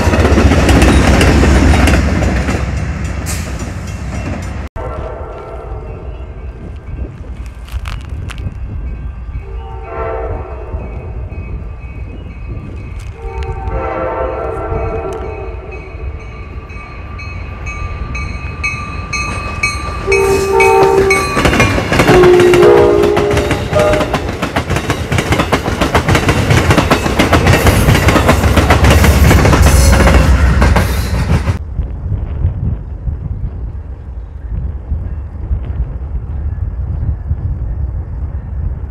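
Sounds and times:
train wheels clicking over rail joints: 0.0 - 4.7, 19.1 - 31.6
faint wind: 0.0 - 38.9
heavy train rumble: 0.0 - 38.9
train horn blasts: 4.8 - 6.4, 9.4 - 11.3, 13.1 - 16.3, 20.0 - 24.3.

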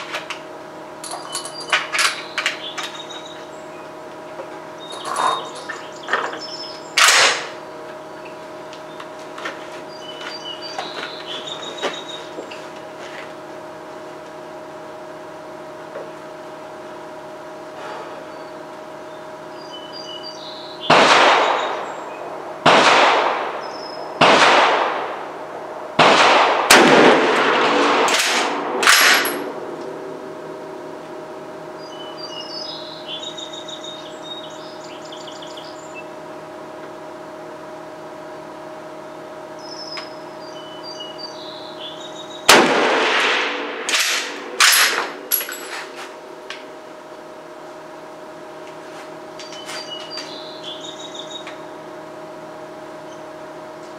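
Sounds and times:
rifle shots with echo: 20.9 - 21.9, 22.6 - 25.3, 26.0 - 29.5, 42.5 - 45.3.

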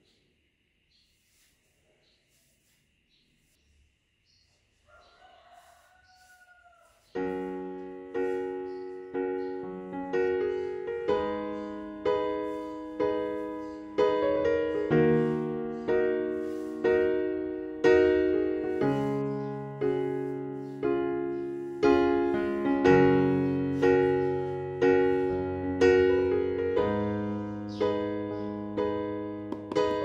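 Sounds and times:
solo piano chords: 7.2 - 30.0.

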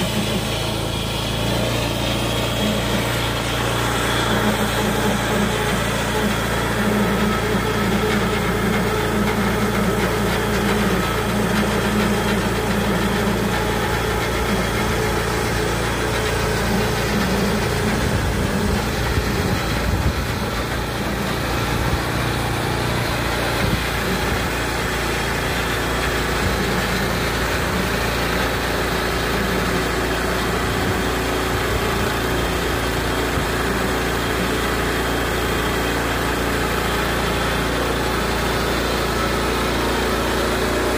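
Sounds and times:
band blade cutting log: 0.0 - 31.0
gasoline engine running: 0.0 - 40.9.

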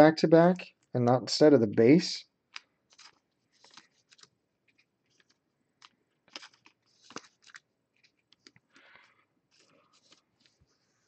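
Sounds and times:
trading cards clicking and scraping: 2.5 - 10.6.

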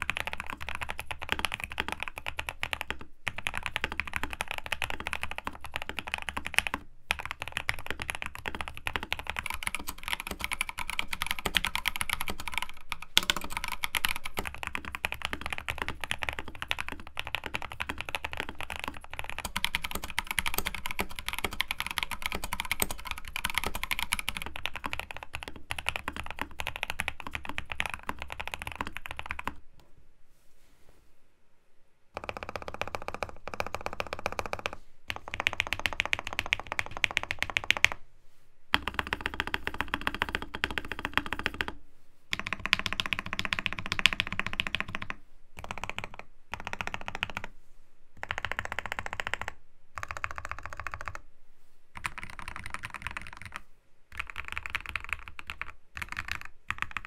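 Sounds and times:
fast typing on keyboard: 0.0 - 29.6, 32.2 - 38.0, 38.7 - 47.5, 48.2 - 51.2, 52.0 - 57.0.

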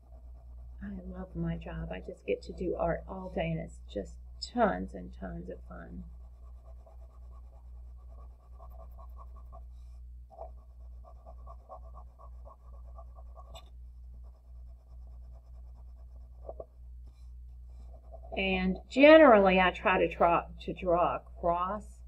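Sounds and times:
low electrical hum: 0.0 - 22.0
crayon scribbling on paper: 5.4 - 16.7, 17.7 - 18.5.

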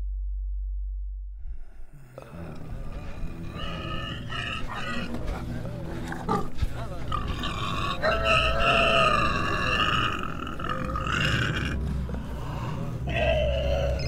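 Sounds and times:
long held low tones: 0.0 - 14.0
steady low rumble: 0.0 - 14.0.

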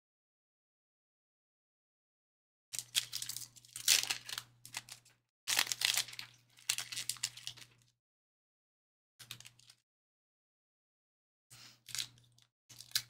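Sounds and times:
foil wrappers crinkling and tearing: 2.8 - 7.8.

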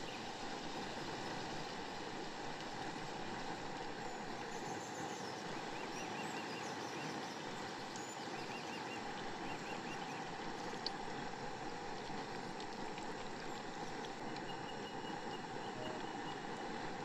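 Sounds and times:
deep-frying sizzle in hot oil: 0.0 - 17.0
faint bird chirps: 14.3 - 16.6.

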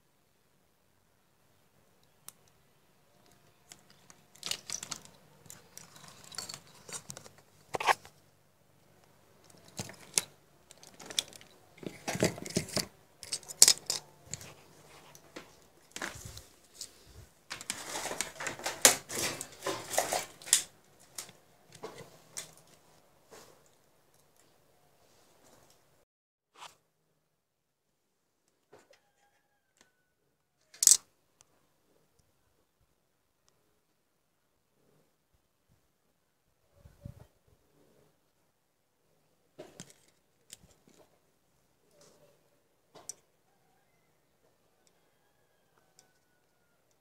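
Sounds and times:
hands handling small objects: 2.0 - 8.2, 9.0 - 24.5, 30.6 - 31.0.

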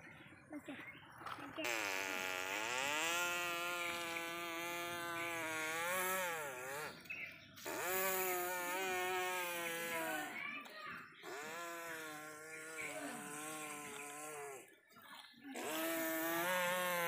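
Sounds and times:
person imitating truck engine: 1.6 - 7.0, 7.6 - 10.4, 11.2 - 14.7, 15.6 - 17.0.

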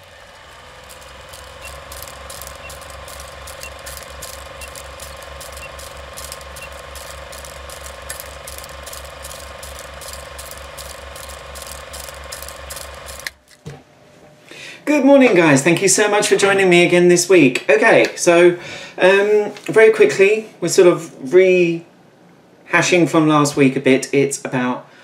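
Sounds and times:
film projector clattering: 0.0 - 13.6.

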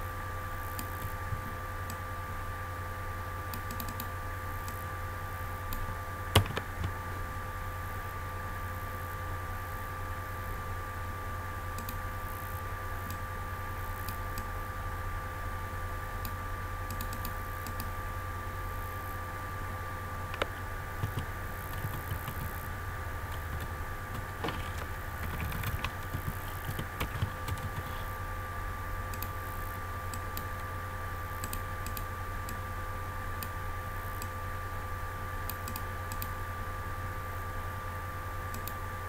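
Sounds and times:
keyboard keys tapping: 6.4 - 7.0, 20.3 - 22.7, 23.3 - 28.1.

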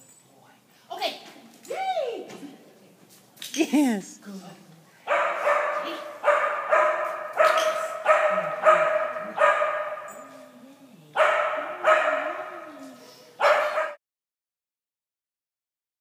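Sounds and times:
dog barking with echo: 5.1 - 10.3, 11.2 - 12.8, 13.4 - 14.0.

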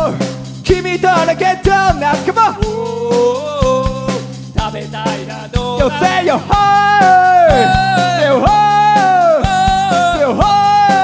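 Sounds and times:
rock band playing: 0.0 - 11.0
man singing long notes: 5.8 - 11.0.

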